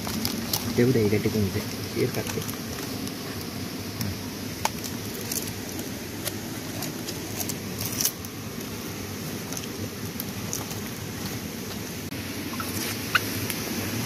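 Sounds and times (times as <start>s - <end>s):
palm leaves rustling and crackling: 0.0s - 14.0s.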